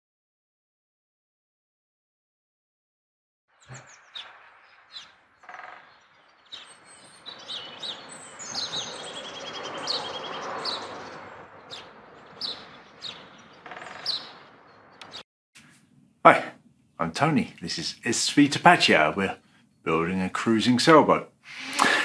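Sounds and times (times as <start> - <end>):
songbirds chirping: 3.5 - 22.0
steady outdoor rush: 3.7 - 15.2.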